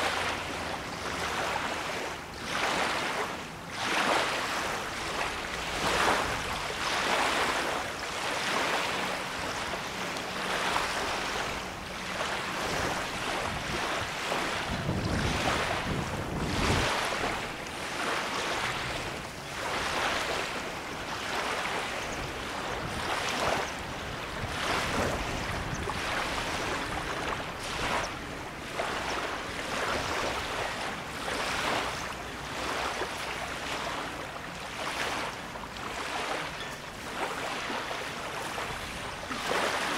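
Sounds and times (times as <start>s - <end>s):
lake waves washing on shore: 0.0s - 39.9s
wind rumbling on microphone: 4.3s - 32.0s.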